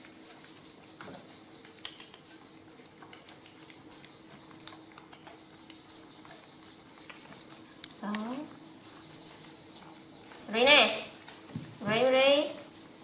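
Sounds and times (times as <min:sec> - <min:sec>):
steady low hum: 0:00.0 - 0:13.0
small clicks and taps: 0:01.0 - 0:08.3.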